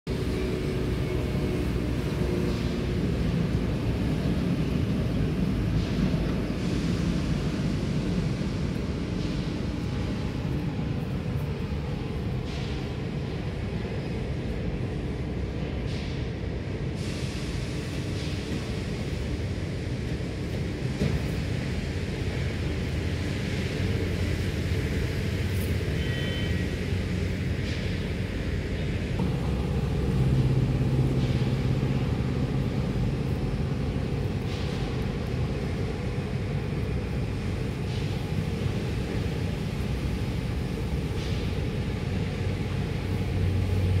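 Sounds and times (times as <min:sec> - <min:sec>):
low engine rumble: 0:00.0 - 0:44.0.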